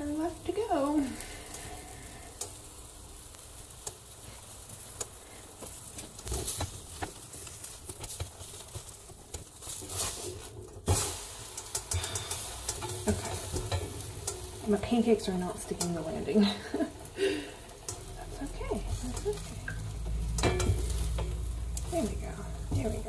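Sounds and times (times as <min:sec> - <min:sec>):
batter sizzling in a pan: 0:00.0 - 0:23.0
spatula scraping a pan: 0:04.2 - 0:14.9, 0:17.7 - 0:21.9.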